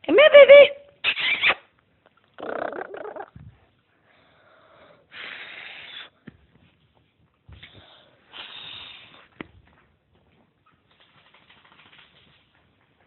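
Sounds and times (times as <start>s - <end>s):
puppy wheezing: 4.6s - 6.2s, 8.2s - 9.3s.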